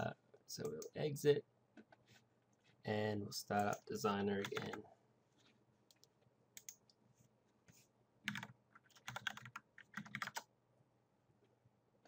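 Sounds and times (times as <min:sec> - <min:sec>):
faint typing on keyboard: 0:03.5 - 0:07.0, 0:07.7 - 0:10.5.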